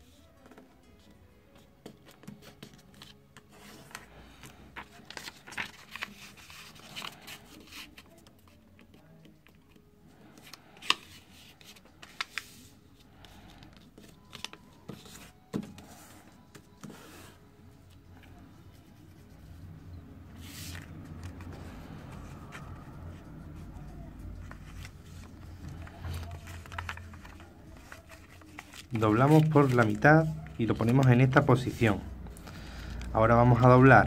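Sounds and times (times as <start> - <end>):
paper being folded: 2.0 - 9.6, 10.3 - 17.4, 20.3 - 32.9.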